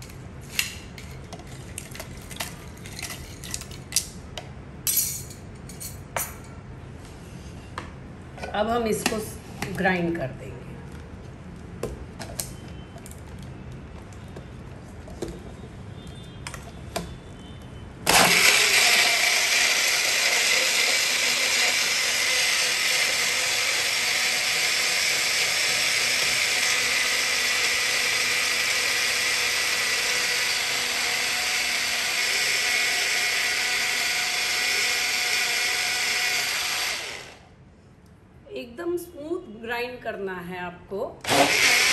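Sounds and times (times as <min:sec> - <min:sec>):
mixer grinder motor running: 0:18.1 - 0:37.5, 0:41.2 - 0:41.9.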